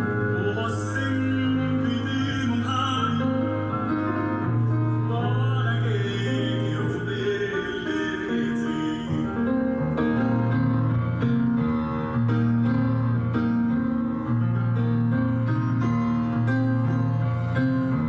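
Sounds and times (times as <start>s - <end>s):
instrumental music: 0.0s - 18.0s.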